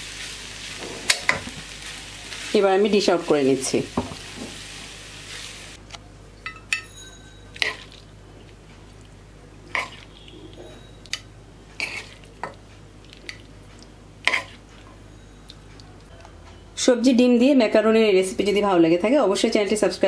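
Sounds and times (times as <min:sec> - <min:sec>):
spatula scraping a frying pan: 0:09.7 - 0:10.8, 0:11.8 - 0:12.3, 0:14.2 - 0:14.8.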